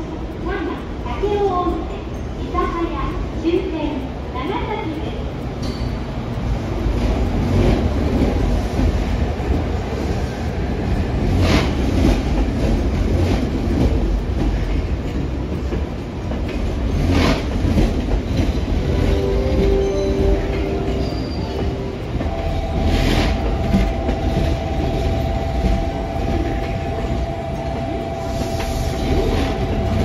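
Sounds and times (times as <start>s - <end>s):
train rumbling on rails: 0.0s - 30.0s
wheels clanking over rail joints: 6.8s - 30.0s.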